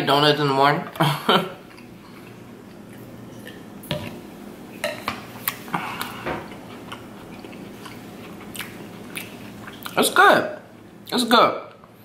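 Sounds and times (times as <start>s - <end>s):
chewing: 1.6s - 3.6s, 5.4s - 10.0s
person drinking: 5.4s - 10.0s.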